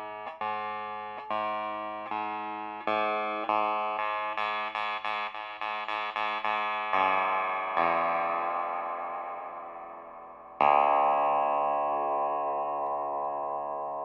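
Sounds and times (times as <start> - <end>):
wire strings plucked and ringing: 8.8 - 14.0.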